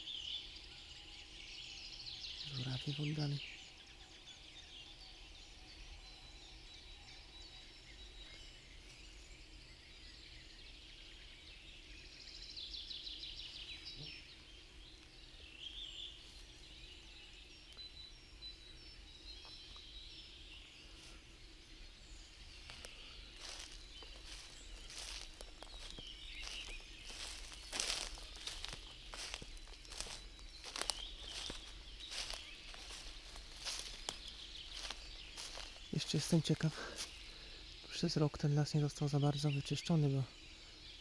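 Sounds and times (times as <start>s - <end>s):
songbirds singing and trilling: 0.0s - 41.0s
footsteps on forest floor: 22.4s - 37.5s
distant cranes calling: 22.6s - 37.8s.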